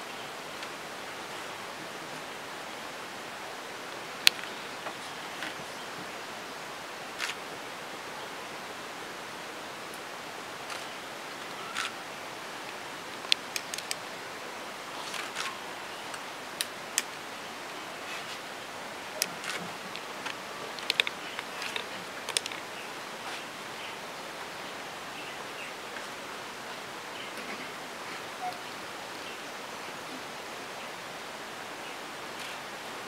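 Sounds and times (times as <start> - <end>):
room tone hiss: 0.0 - 33.0
small sharp clicks: 10.7 - 11.9, 13.3 - 14.0, 19.2 - 22.6
soft rustles: 18.0 - 18.5.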